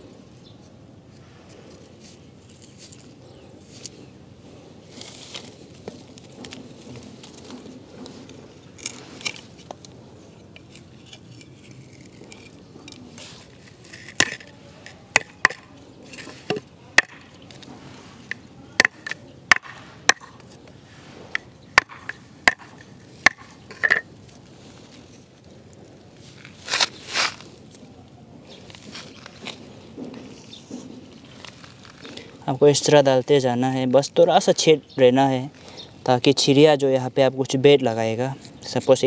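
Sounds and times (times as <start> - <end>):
machete chopping bamboo: 13.6 - 14.5, 15.1 - 20.6, 21.3 - 24.0.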